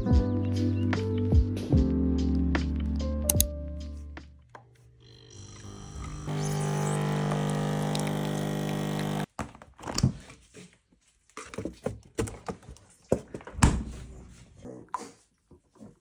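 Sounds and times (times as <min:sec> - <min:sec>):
coffee machine pump humming: 0:05.2 - 0:09.3.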